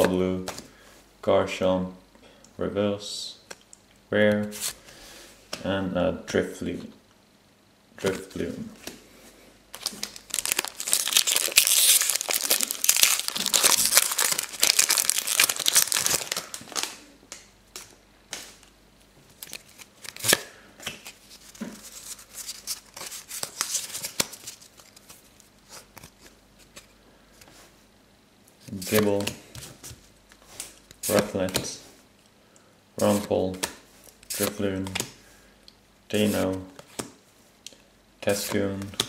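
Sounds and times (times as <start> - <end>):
foil wrapper tearing and crinkling: 9.8 - 17.0.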